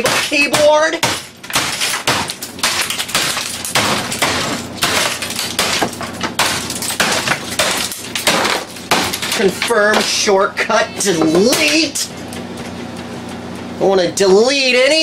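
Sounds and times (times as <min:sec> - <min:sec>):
broken keys scattering: 0:01.2 - 0:10.0.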